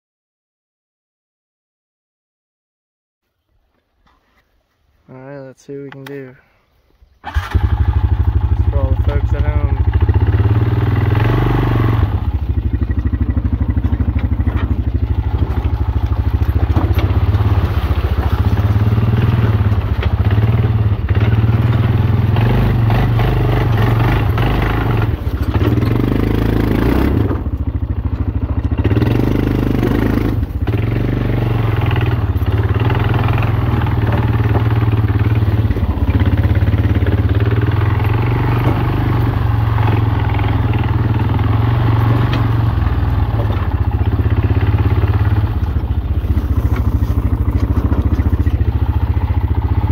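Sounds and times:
atv engine running under load: 7.2s - 49.9s
brush scraping against machine: 46.2s - 48.6s.

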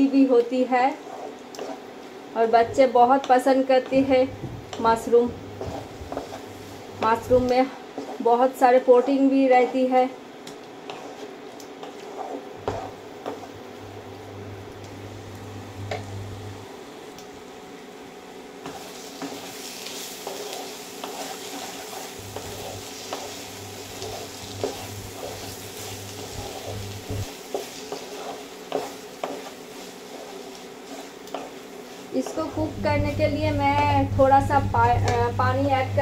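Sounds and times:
spatula scraping wok: 0.0s - 13.8s, 18.6s - 35.2s
food sizzling: 0.0s - 16.6s, 18.5s - 36.0s.

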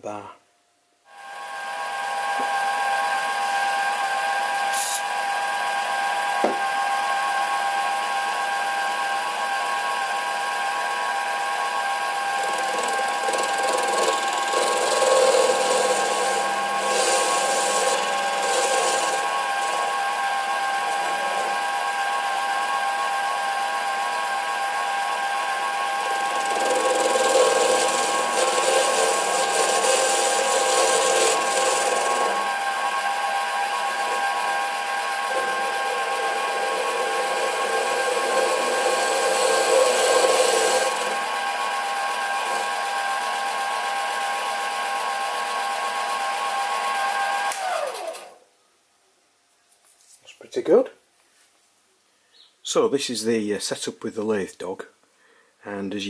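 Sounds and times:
lathe tool cutting steel: 1.1s - 48.1s
lathe motor whine: 1.1s - 48.4s.

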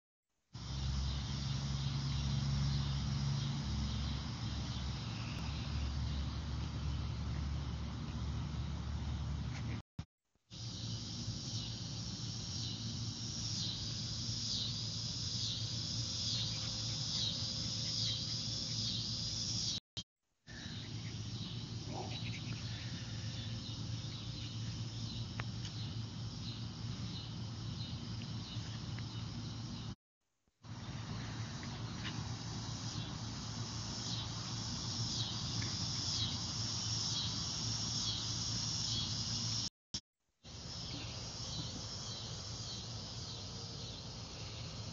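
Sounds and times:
outdoor background noise: 0.5s - 9.8s, 10.5s - 19.8s, 20.4s - 39.7s, 40.4s - 44.9s
insects buzzing: 0.6s - 9.6s, 10.5s - 19.8s, 20.5s - 30.0s, 30.6s - 39.7s, 40.5s - 44.9s
insects shrilling: 10.6s - 19.8s, 31.4s - 39.7s.

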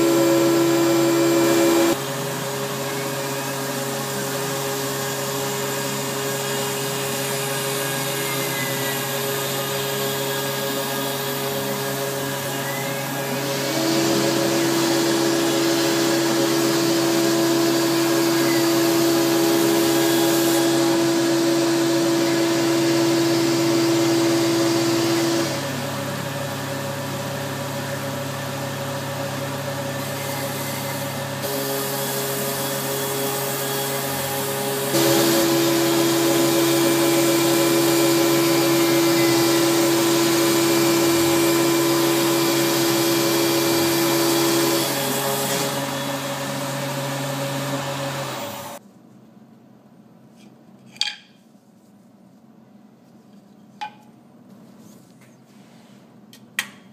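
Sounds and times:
mill spindle milling: 0.0s - 25.8s, 29.0s - 48.8s
shop vacuum running: 0.0s - 48.8s.

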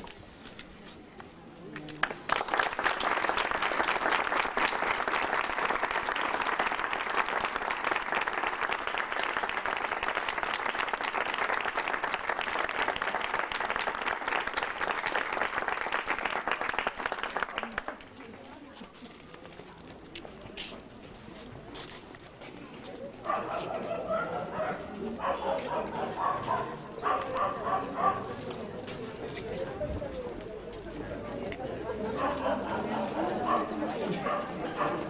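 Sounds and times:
crowd applauding: 2.0s - 18.2s.

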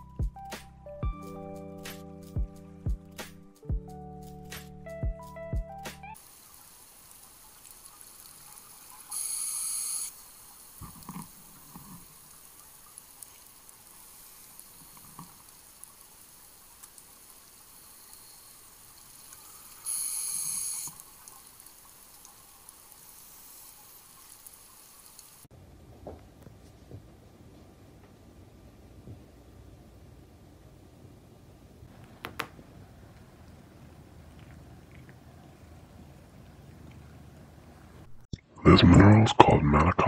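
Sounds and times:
underwater hiss: 6.2s - 25.5s
regulator hissing inhalation: 9.1s - 10.1s, 17.9s - 21.0s
bubbling exhalations: 33.4s - 37.4s.

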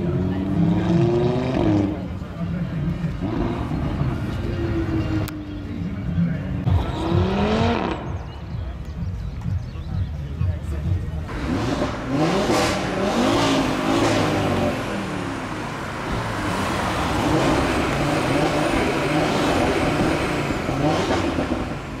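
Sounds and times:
car engine revving: 6.6s - 8.4s, 11.2s - 22.0s.

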